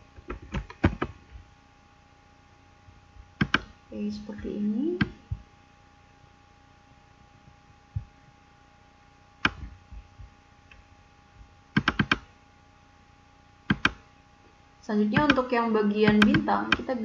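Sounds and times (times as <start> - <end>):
faint steady hum: 0.0 - 17.0
computer mouse clicks: 0.3 - 1.2, 3.4 - 3.7, 9.4 - 9.7, 11.8 - 12.3, 13.7 - 14.0, 16.1 - 16.9.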